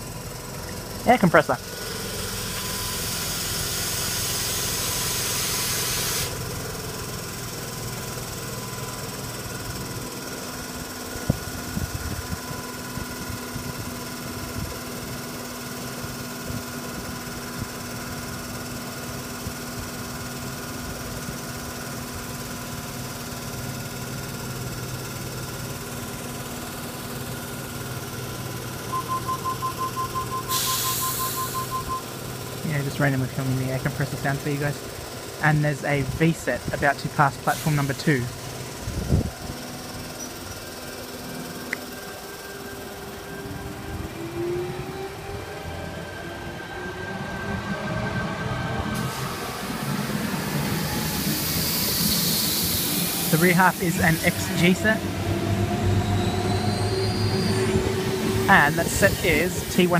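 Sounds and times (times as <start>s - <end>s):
air compressor humming: 0.0s - 32.8s, 49.0s - 59.9s
air hissing: 2.4s - 6.4s, 30.4s - 31.8s, 50.8s - 54.7s
rapid electronic beeping: 28.8s - 32.2s.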